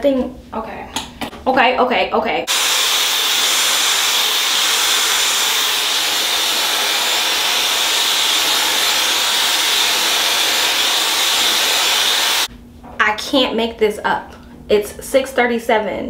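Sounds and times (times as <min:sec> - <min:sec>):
hair dryer running: 0:02.5 - 0:12.5.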